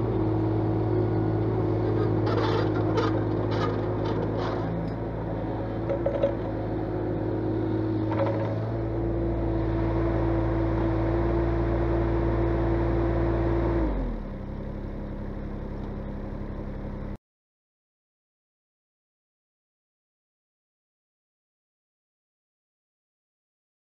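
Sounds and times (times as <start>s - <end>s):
hydraulics whining: 0.0s - 12.4s
excavator diesel engine running: 0.0s - 17.2s.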